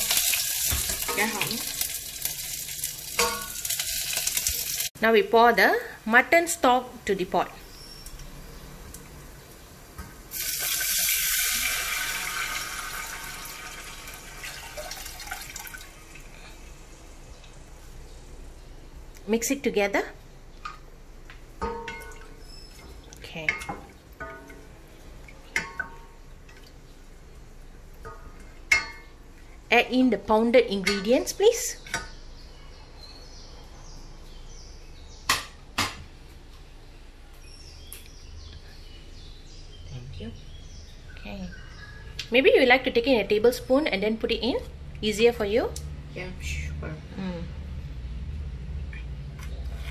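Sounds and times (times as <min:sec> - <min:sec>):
stock sizzling in hot oil: 0:00.0 - 0:05.0, 0:09.9 - 0:15.8.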